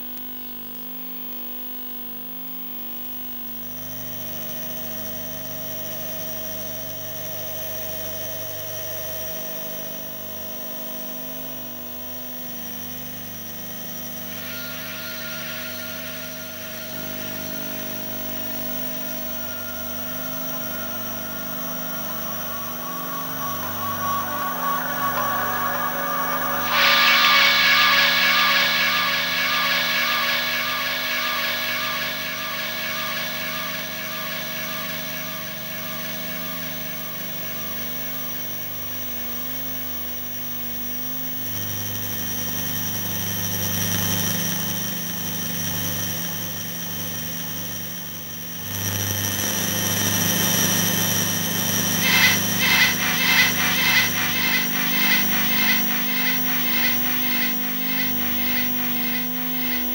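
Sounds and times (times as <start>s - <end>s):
electronic drones and hiss: 13.6s - 38.4s, 51.4s - 59.9s
electronic pulsing: 14.2s - 36.5s, 51.8s - 59.9s.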